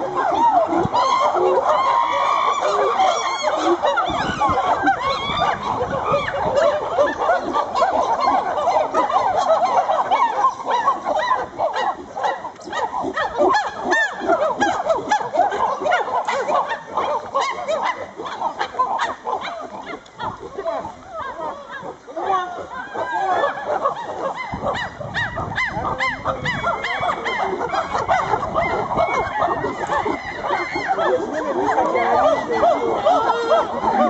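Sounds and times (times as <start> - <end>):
chimpanzees hooting: 0.0 - 34.0.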